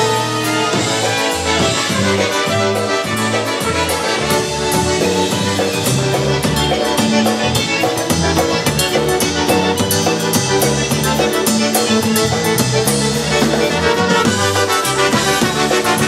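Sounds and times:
accordion and concertina tune: 0.0s - 16.0s
drums beat: 0.0s - 16.0s
electric bass: 0.0s - 16.0s.

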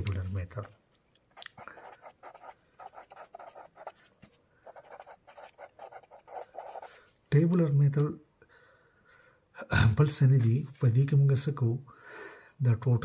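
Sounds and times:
pen scratching on paper: 1.7s - 7.1s.

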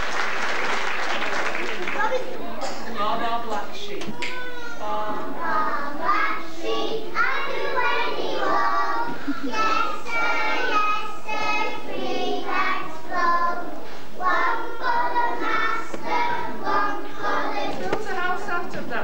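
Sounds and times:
children singing in unison: 4.8s - 18.1s.

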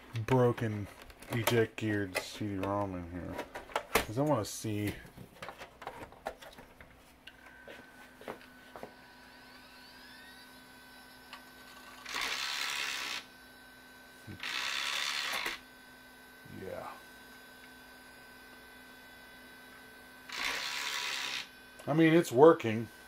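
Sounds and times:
computer hum: 0.0s - 23.0s
cd drive spinning up whine: 7.3s - 23.0s.

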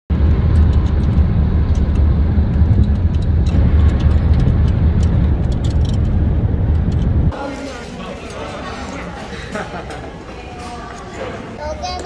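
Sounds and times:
car road and wind noise: 0.1s - 7.4s.

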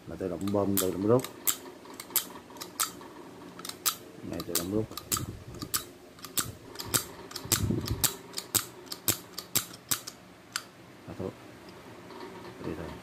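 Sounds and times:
syringe metallic clicks: 0.4s - 3.0s, 3.6s - 10.7s.

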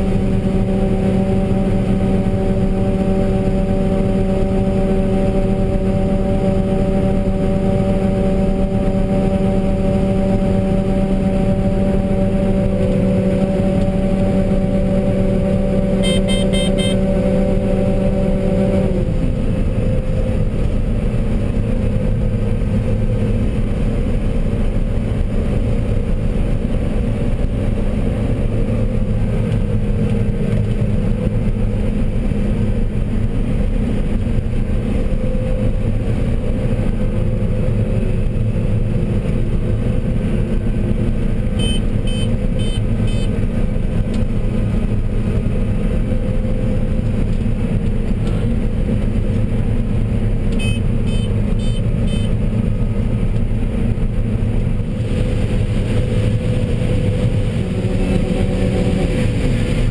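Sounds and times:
combine harvester drone: 0.0s - 59.9s
short electronic beeps: 16.0s - 17.0s, 41.6s - 43.3s, 50.6s - 52.3s.

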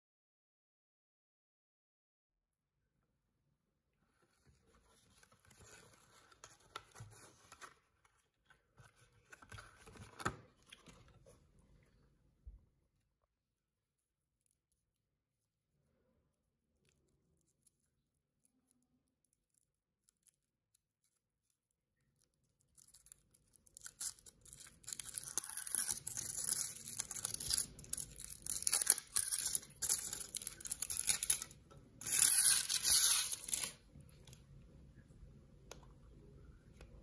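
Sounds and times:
chocolate shell cracking: 19.2s - 33.8s
foil wrapper crinkling: 19.3s - 33.8s.

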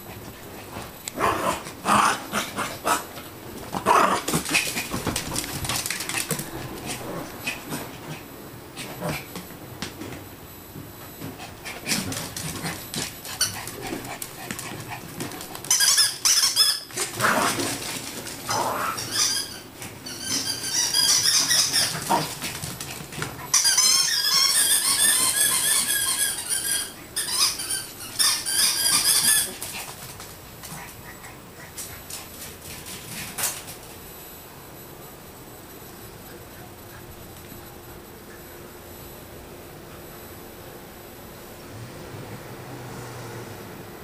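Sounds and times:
high-pitched warbling squeaks: 19.0s - 22.3s, 23.5s - 29.6s.

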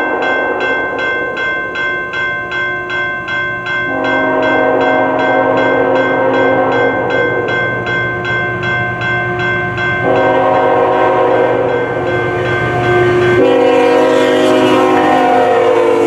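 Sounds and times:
level-crossing warning bell: 0.0s - 16.0s
locomotive air horn: 3.9s - 7.1s, 10.0s - 11.8s, 13.4s - 16.0s.

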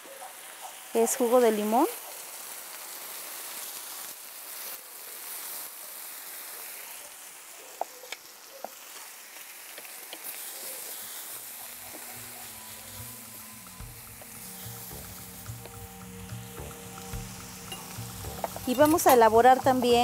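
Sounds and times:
vegetables sizzling on a hot griddle: 0.0s - 20.0s
soft music: 11.4s - 20.0s.

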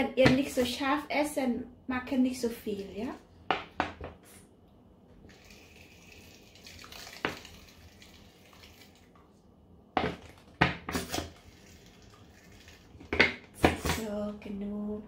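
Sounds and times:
squeeze bottle squirting: 10.9s - 13.0s.

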